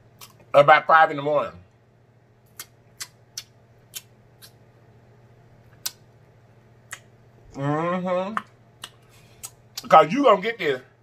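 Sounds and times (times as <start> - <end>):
chewing mouth smacks and clicks: 0.2 - 0.4, 2.5 - 4.6, 5.7 - 6.1, 6.9 - 7.1, 8.4 - 9.9
person speaking: 7.5 - 8.6, 9.8 - 11.0.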